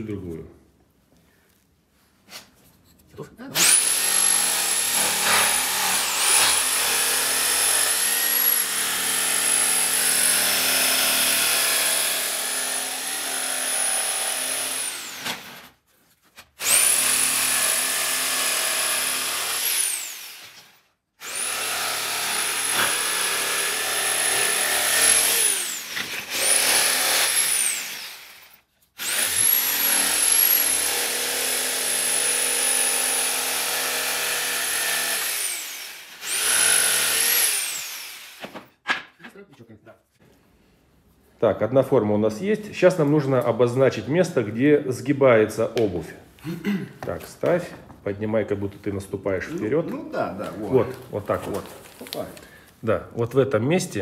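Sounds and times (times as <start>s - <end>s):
electric jigsaw cutting wood: 3.6s - 15.8s, 16.6s - 38.7s.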